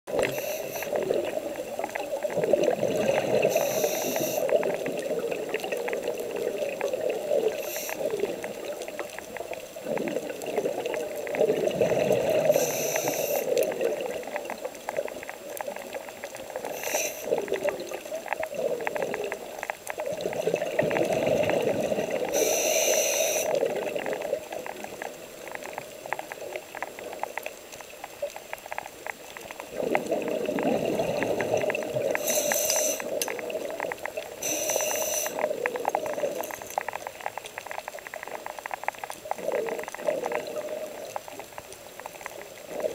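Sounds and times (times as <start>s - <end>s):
faint steady crackle: 0.0s - 42.9s
exhaled bubbles gurgling: 0.1s - 42.9s
regulator hissing: 3.5s - 4.6s, 22.4s - 23.6s, 34.4s - 35.4s.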